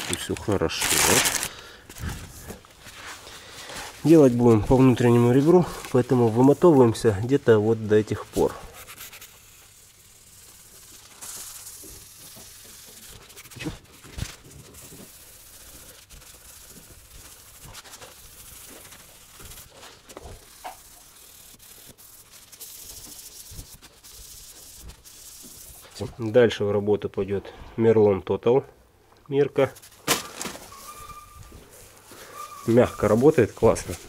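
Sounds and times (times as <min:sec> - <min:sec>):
abrasive pad rasping on paint: 0:02.9 - 0:26.0.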